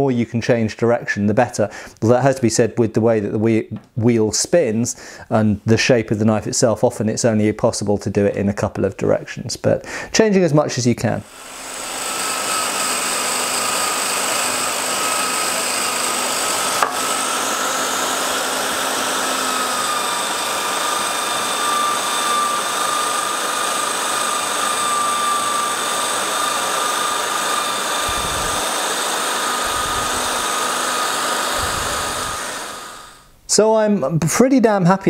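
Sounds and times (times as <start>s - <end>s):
electric drill buffing metal: 11.3s - 33.3s.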